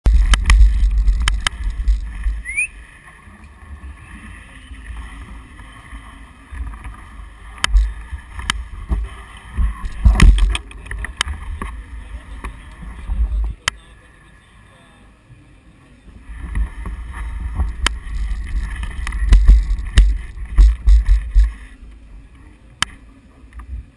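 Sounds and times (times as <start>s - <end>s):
bike clicks and knocks: 0.1s - 2.4s, 7.6s - 11.8s, 17.6s - 21.6s
wind buffeting microphone: 16.3s - 21.6s.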